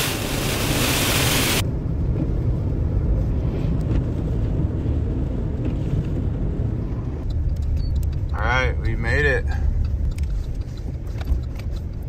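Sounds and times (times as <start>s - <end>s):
loud hiss: 0.0s - 1.6s
road rumble inside car: 0.0s - 12.0s.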